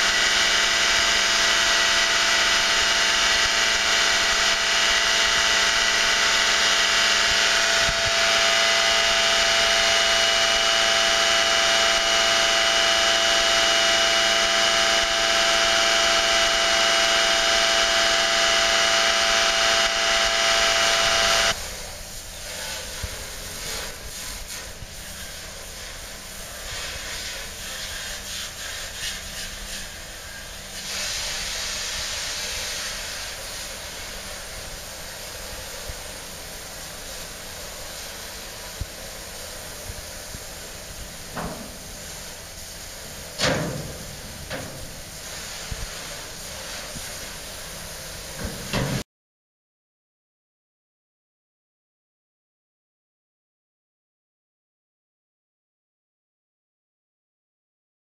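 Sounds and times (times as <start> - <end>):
pump running with whine: 0.0 - 49.0
outdoor hiss: 20.0 - 49.0.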